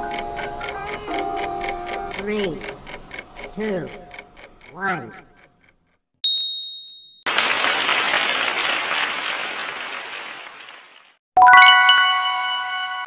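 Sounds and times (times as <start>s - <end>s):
ringing ding: 6.3s - 7.3s
canned applause: 7.3s - 11.2s
bright bell-like chime: 11.4s - 13.0s.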